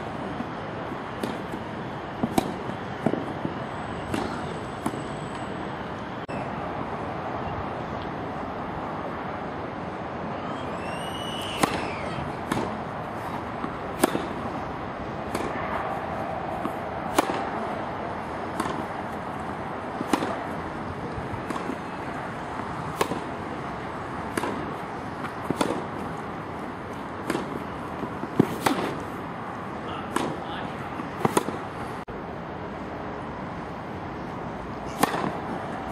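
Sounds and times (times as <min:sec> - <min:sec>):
tennis ball struck by rackets: 0:01.1 - 0:05.0, 0:11.5 - 0:29.2, 0:30.1 - 0:30.4, 0:31.0 - 0:31.7, 0:34.9 - 0:35.9.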